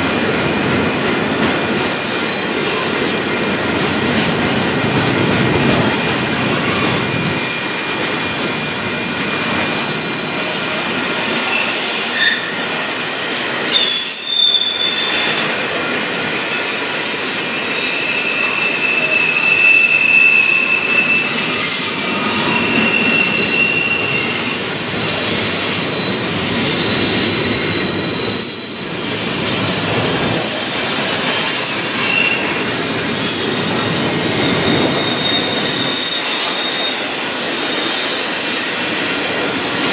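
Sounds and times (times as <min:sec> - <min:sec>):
train rumbling over rails: 0:00.0 - 0:39.9
high-pitched wheel squeals: 0:09.4 - 0:10.6, 0:13.7 - 0:15.7, 0:16.6 - 0:29.0, 0:32.0 - 0:39.9.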